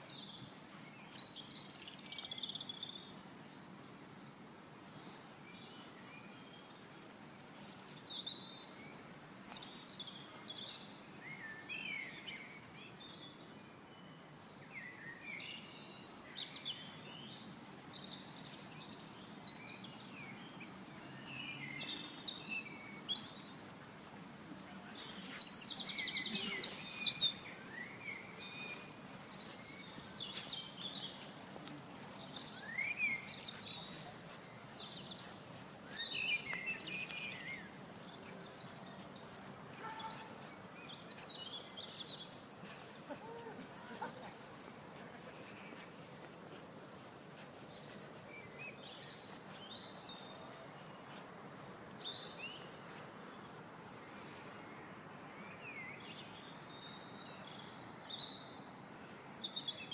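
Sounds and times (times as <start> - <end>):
steady low background noise: 0.0 - 59.9
birds singing and chirping: 7.6 - 46.0.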